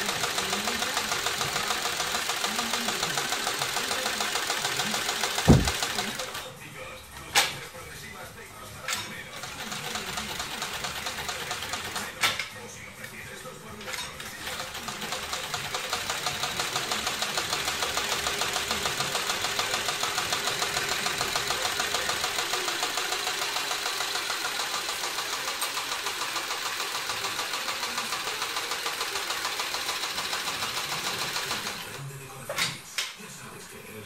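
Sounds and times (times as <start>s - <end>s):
sewing machine stitching: 0.0s - 6.4s, 9.4s - 12.3s, 14.2s - 32.0s.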